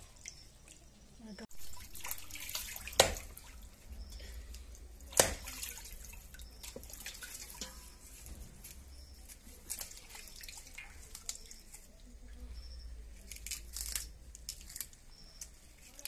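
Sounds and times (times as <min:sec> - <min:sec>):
water dripping: 0:00.0 - 0:16.0
cleaver chopping meat on wood: 0:05.2 - 0:05.4.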